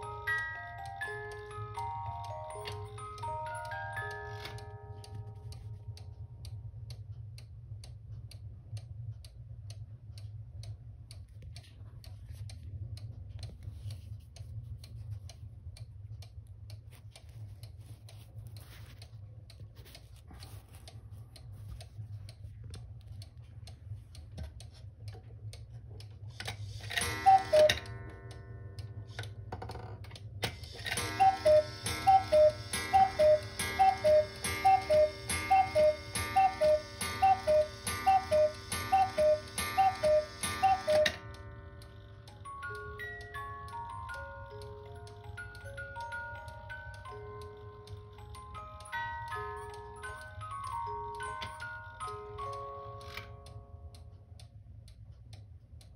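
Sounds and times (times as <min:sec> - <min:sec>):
clock ticking: 0:00.0 - 0:55.9
cuckoo clock two-note call: 0:26.9 - 0:28.3, 0:30.8 - 0:43.9.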